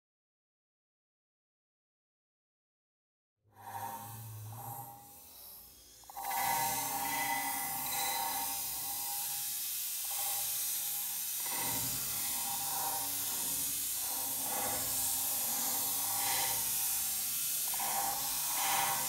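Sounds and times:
vegetables sizzling in oil: 5.1 - 19.0.

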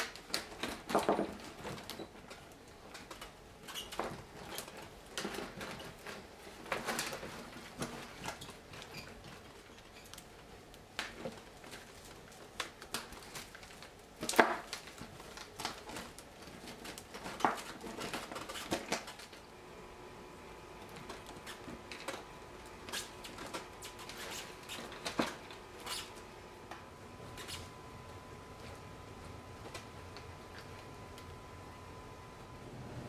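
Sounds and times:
dry twigs rustling and crackling: 0.0 - 19.5.

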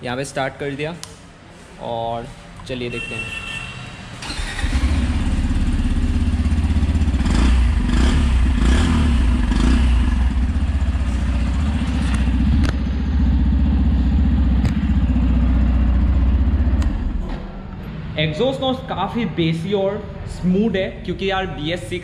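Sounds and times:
motorcycle engine idling: 5.0 - 8.6, 9.3 - 17.2.

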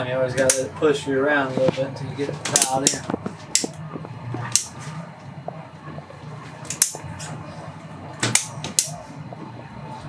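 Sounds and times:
boat engines droning: 0.0 - 10.0
sharp clicks: 2.4 - 4.8, 6.6 - 7.0.

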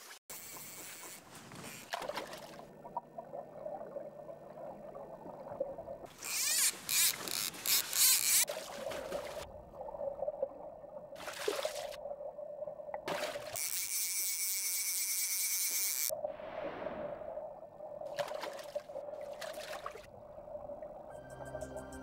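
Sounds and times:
rushing splashing water: 11.2 - 12.0.

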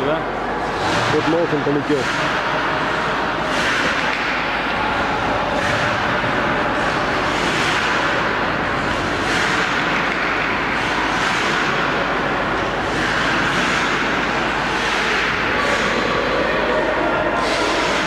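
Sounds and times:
skate blades scraping ice: 2.0 - 4.4, 5.6 - 16.0.

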